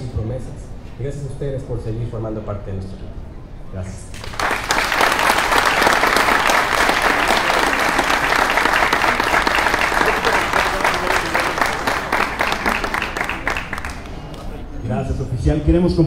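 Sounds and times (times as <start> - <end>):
audience applause: 4.2 - 14.5.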